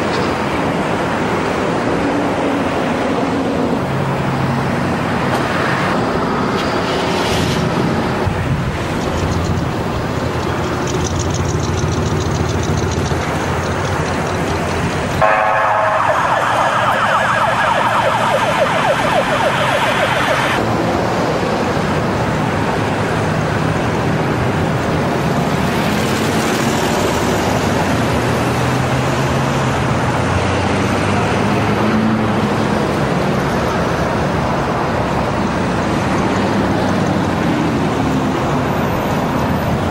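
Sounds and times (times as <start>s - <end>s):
road traffic noise: 0.0s - 39.9s
low engine drone: 6.0s - 33.4s.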